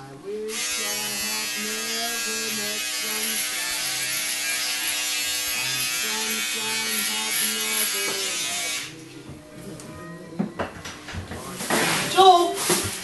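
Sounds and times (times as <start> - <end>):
electric shaver buzzing: 0.4 - 9.0.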